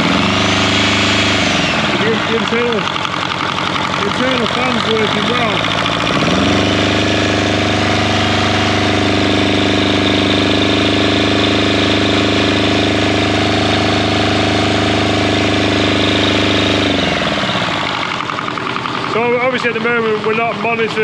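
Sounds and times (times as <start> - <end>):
alternator cooling fan whir: 0.0 - 21.0
diesel engine running: 0.0 - 21.0.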